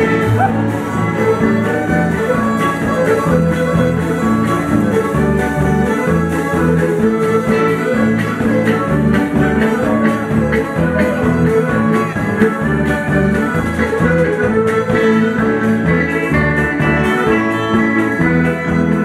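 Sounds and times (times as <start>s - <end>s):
accordion: 0.0s - 19.0s
electric guitar: 0.0s - 19.0s
fiddle tune: 0.0s - 19.0s.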